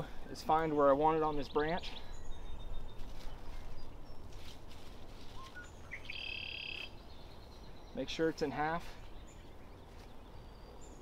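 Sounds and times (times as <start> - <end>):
songbirds calling: 0.0 - 11.0
rope and leaves rustling: 2.8 - 7.4, 8.0 - 10.4
buzzy bird trill: 5.3 - 8.1.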